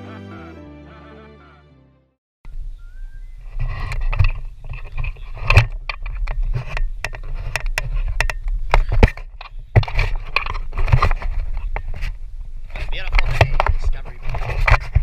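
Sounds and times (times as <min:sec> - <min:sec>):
camera handling knocks and scrapes: 0:03.6 - 0:12.1, 0:12.8 - 0:15.0.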